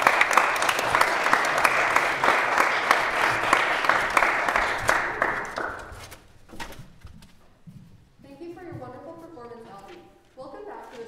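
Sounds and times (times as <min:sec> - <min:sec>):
small audience applauding: 0:00.0 - 0:06.2.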